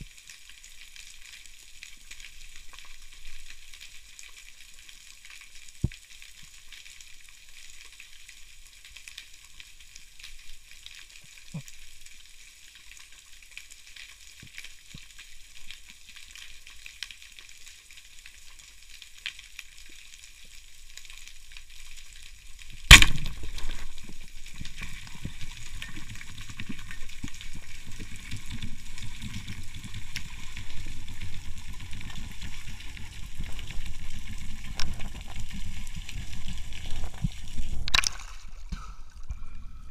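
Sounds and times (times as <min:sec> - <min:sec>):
rushing water: 0:19.6 - 0:39.9
speargun firing crack: 0:22.9 - 0:23.8.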